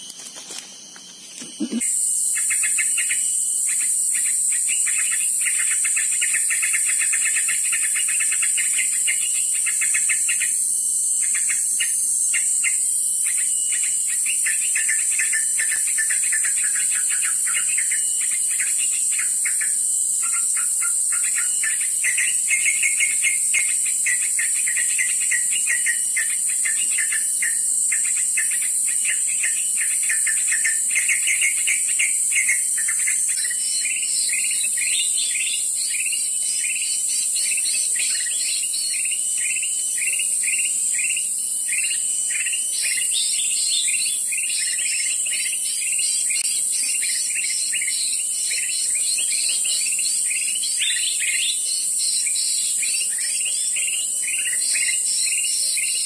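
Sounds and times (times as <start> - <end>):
small birds chirping: 0.0 - 10.6, 14.2 - 56.0
insects high-pitched drone: 0.0 - 56.0.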